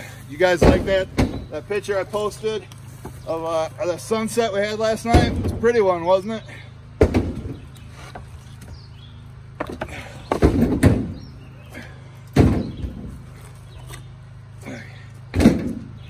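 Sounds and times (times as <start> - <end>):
steady low hum: 0.0 - 16.0
firewood thudding onto wood pile: 0.6 - 1.6, 7.0 - 8.3, 9.6 - 11.3, 12.3 - 13.2, 15.3 - 15.9.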